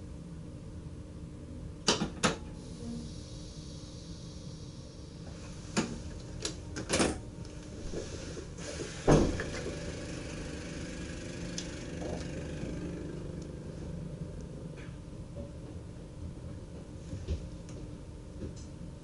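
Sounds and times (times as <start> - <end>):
electric train cab hum: 2.6 - 18.7
loud thump: 9.1 - 9.5.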